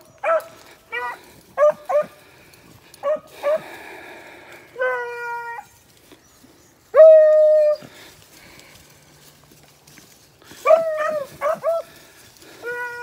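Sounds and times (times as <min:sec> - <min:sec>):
hounds baying: 0:00.0 - 0:03.8, 0:04.6 - 0:05.8, 0:06.8 - 0:08.2, 0:10.4 - 0:13.0.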